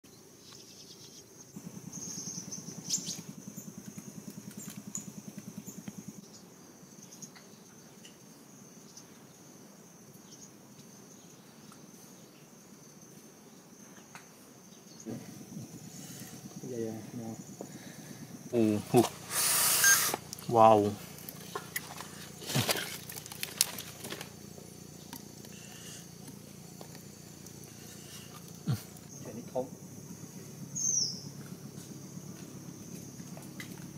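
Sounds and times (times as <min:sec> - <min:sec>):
insects chirring: 0:00.0 - 0:33.9
low rapid throbbing: 0:01.6 - 0:06.2
faint hiss: 0:06.3 - 0:32.0
hands handling crab and line: 0:21.1 - 0:24.4.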